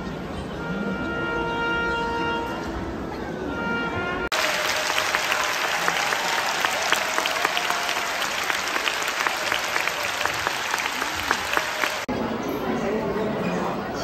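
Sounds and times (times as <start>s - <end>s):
audience applauding: 4.3s - 12.1s.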